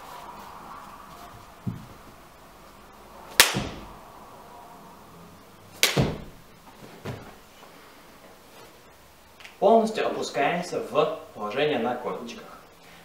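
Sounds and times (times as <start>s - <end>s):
low thuds on floor mat: 1.6s - 2.2s, 5.9s - 7.4s
sharp hand claps: 3.4s - 3.9s, 5.8s - 6.3s.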